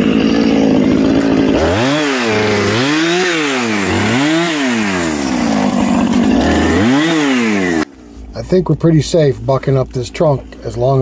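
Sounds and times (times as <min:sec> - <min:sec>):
chainsaw cutting tree trunk: 0:00.0 - 0:08.0.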